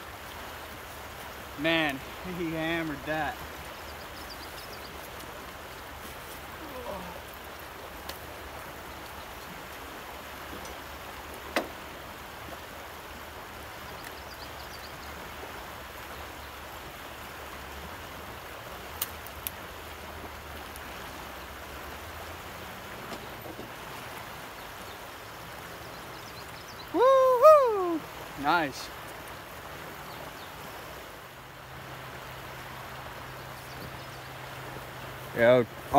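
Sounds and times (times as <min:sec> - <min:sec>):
river current rushing: 0:00.0 - 0:35.9.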